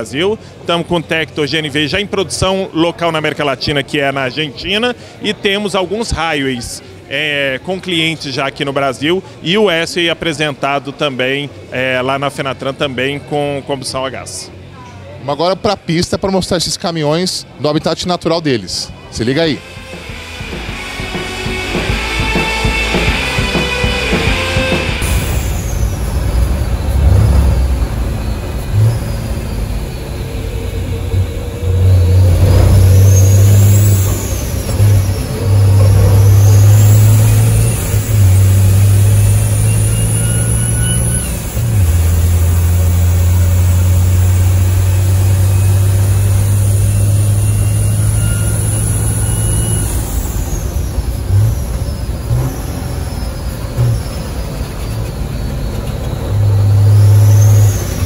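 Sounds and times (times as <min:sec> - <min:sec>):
truck diesel engine drone: 0:00.0 - 0:03.6, 0:17.3 - 0:58.0
high whistle: 0:19.4 - 0:42.8, 0:44.8 - 0:58.0.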